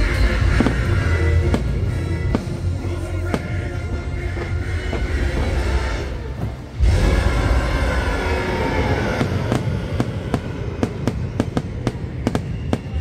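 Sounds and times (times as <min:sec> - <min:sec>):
fireworks booming: 0:00.0 - 0:13.0
rumble of bursting shells: 0:08.9 - 0:13.0.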